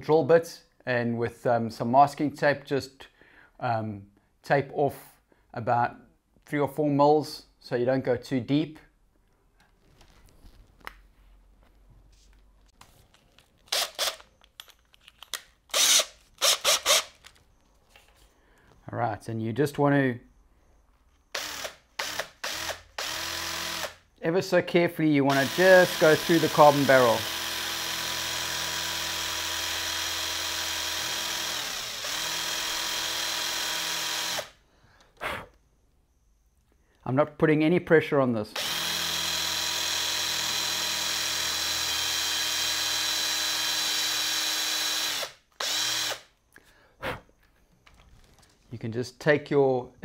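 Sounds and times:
cordless drill motor whining: 0:13.7 - 0:14.3, 0:15.7 - 0:17.4, 0:21.3 - 0:24.0, 0:25.3 - 0:34.6, 0:38.6 - 0:46.3.

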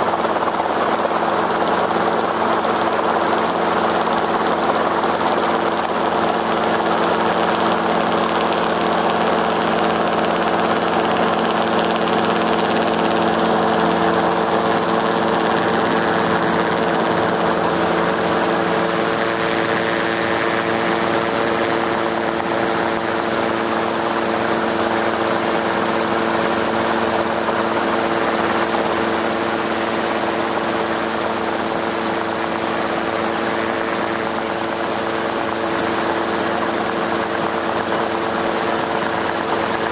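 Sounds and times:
aircraft engine and rotor noise: 0:00.0 - 0:39.9
faint high whine: 0:11.0 - 0:39.9.

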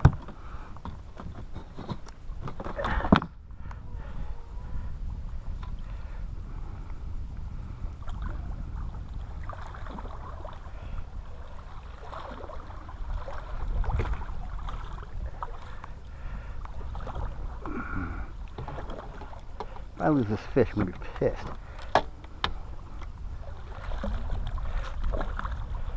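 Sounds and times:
wind rumble on microphone: 0:00.0 - 0:25.9.

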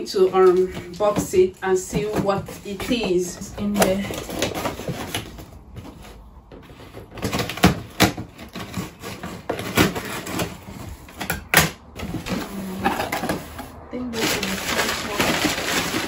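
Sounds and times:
box handling clicks and knocks: 0:00.2 - 0:13.5
rustling: 0:12.0 - 0:16.0.

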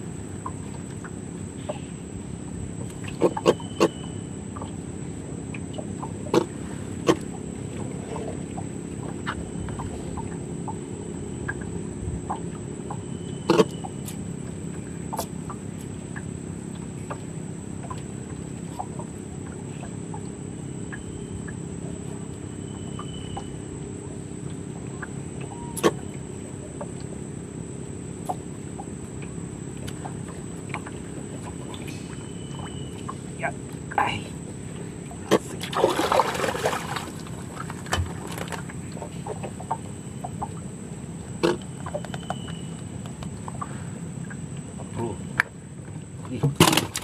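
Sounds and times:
low hum: 0:00.0 - 0:47.0
high insect-like whine: 0:16.5 - 0:47.0.

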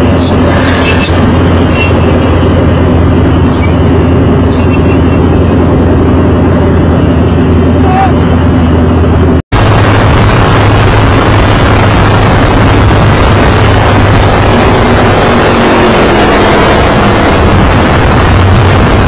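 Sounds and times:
race car engine drone: 0:00.0 - 0:19.0
wind noise on microphone: 0:09.5 - 0:19.0.

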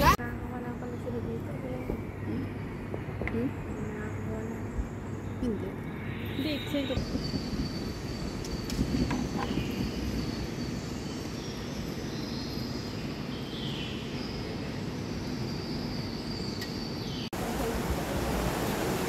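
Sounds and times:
hissy ambience: 0:00.0 - 0:19.0.

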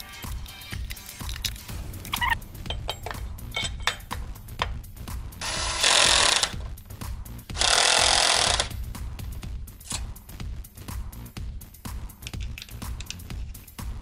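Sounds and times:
background music: 0:00.0 - 0:14.0
power tool whirring: 0:05.4 - 0:06.6, 0:07.5 - 0:08.7.

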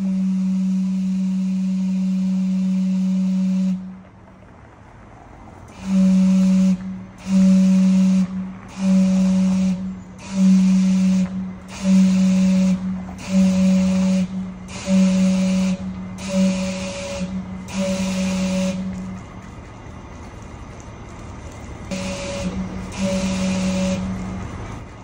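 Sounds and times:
low steam whistle blasts: 0:00.0 - 0:04.0, 0:05.7 - 0:19.3, 0:21.9 - 0:24.6
steam hissing: 0:05.7 - 0:19.0, 0:21.9 - 0:25.0.

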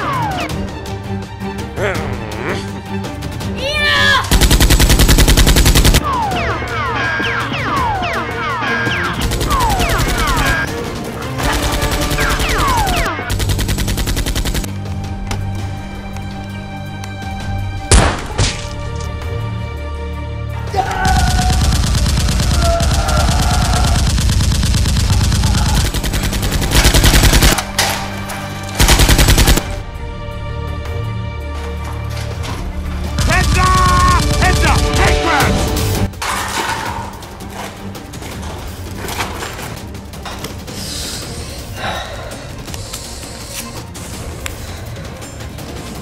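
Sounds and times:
background music: 0:00.0 - 0:46.0
automatic gunfire bursts: 0:04.3 - 0:06.0, 0:11.4 - 0:14.7, 0:21.2 - 0:27.6, 0:28.8 - 0:29.7.

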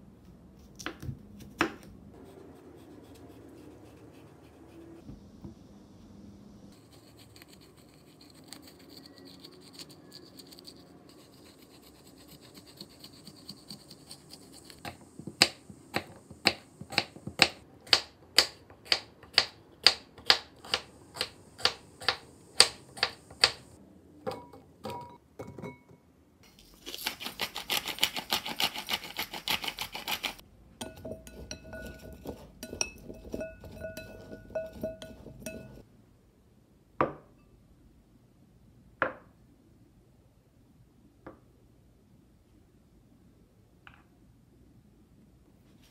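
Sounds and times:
spoon scraping cucumber seeds: 0:06.8 - 0:17.6, 0:26.5 - 0:35.8
knife chopping on wooden board: 0:14.8 - 0:23.6.

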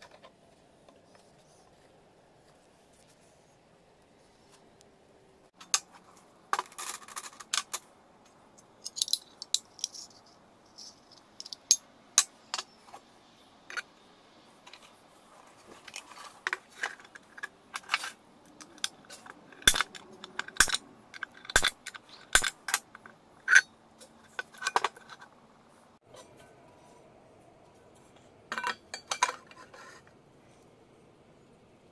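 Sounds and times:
metal parts clinking: 0:08.8 - 0:12.7, 0:15.8 - 0:25.3, 0:28.5 - 0:29.7.

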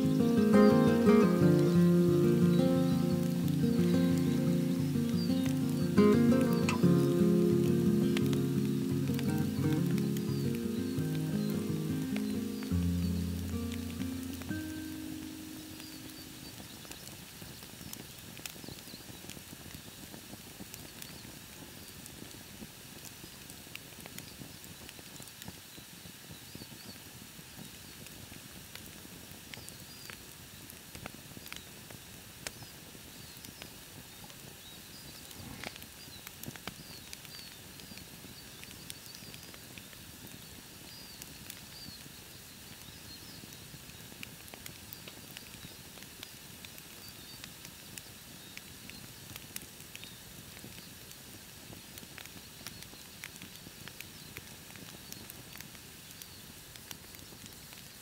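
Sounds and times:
faint high chirps: 0:00.0 - 0:17.0
campfire crackling: 0:00.0 - 0:25.5, 0:27.6 - 0:29.6, 0:30.2 - 0:58.0.

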